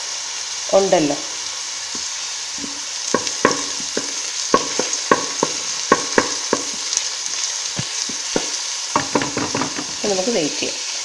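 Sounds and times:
onion sizzling in hot oil: 0.0s - 11.0s
wooden spatula clacking on pan: 2.0s - 10.0s.

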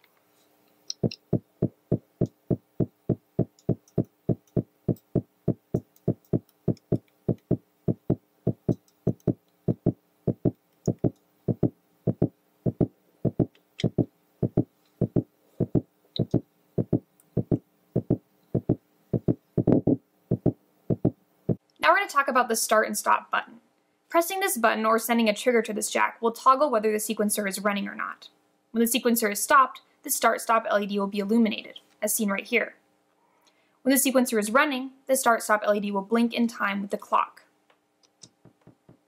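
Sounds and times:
electronic kick drum pattern: 0.9s - 21.2s.

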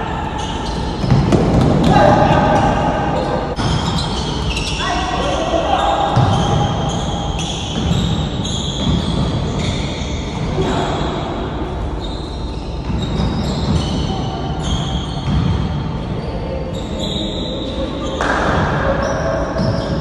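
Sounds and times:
shoe squeaks: 0.0s - 11.1s, 11.9s - 18.3s, 18.9s - 20.0s
basketball bouncing: 1.0s - 2.8s, 7.7s - 9.7s.

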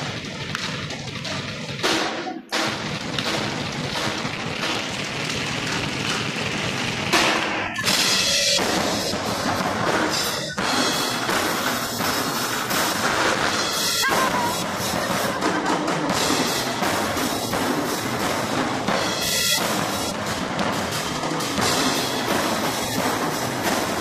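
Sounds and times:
drum ensemble playing: 0.0s - 24.0s
loud drum hit: 0.0s - 24.0s.

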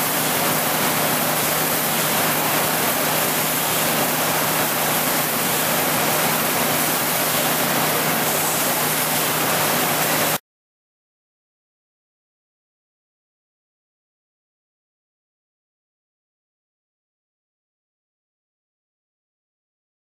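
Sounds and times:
paper sheeter machine rushing: 0.0s - 10.4s.

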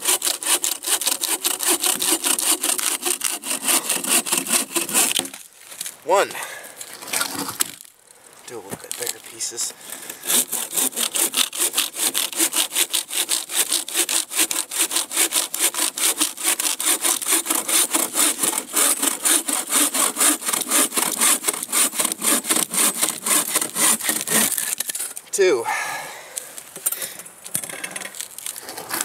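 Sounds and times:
bow saw cutting log: 0.0s - 5.4s, 9.9s - 24.8s.

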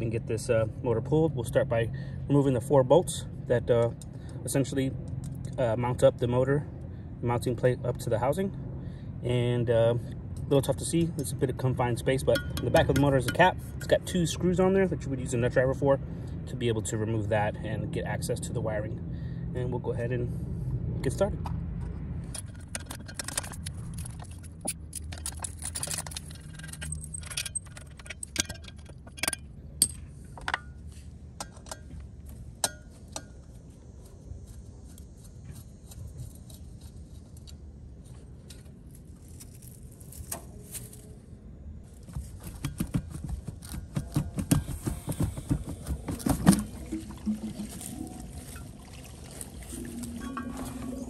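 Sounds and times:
hand tools clinking on metal: 12.2s - 14.0s.

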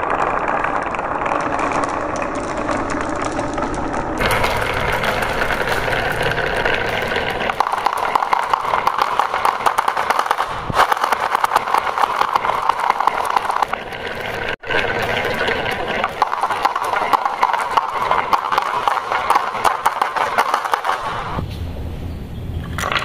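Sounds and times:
glass marbles rolling down tracks: 0.0s - 21.4s, 22.6s - 23.0s
marbles clicking together: 0.0s - 21.4s.

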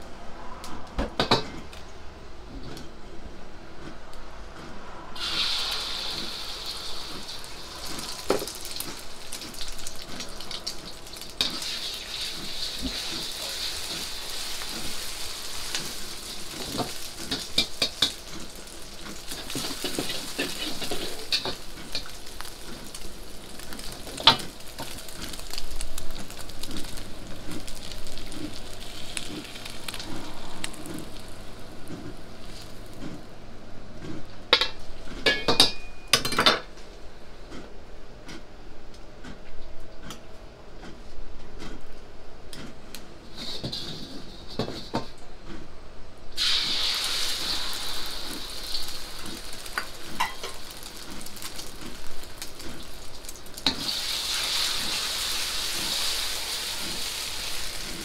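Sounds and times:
egg sizzling in hot oil: 5.2s - 33.0s, 46.4s - 58.0s.

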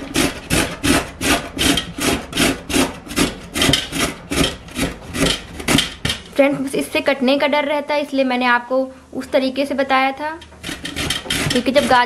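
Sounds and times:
carrot grated on a grater: 0.0s - 6.4s, 10.4s - 12.0s.

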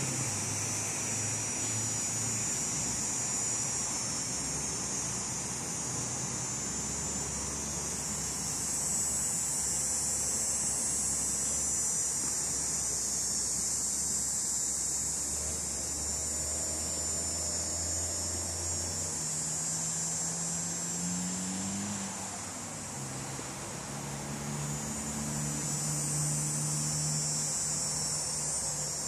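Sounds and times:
insects droning: 0.0s - 29.0s
vehicle engine passing: 16.2s - 28.1s.

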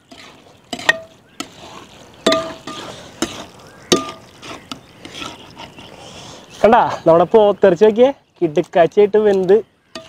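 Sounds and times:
ladle stirring thick curry: 0.0s - 6.6s
ladle knocking metal pot: 0.1s - 1.6s, 2.2s - 4.3s.

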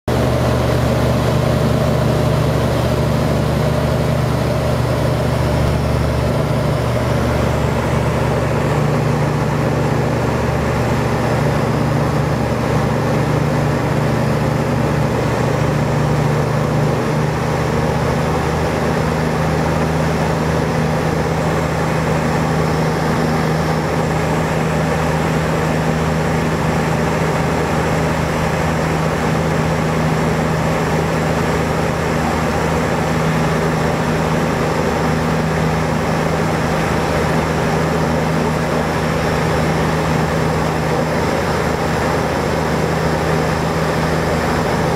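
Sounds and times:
light aircraft engine droning: 0.1s - 44.9s.

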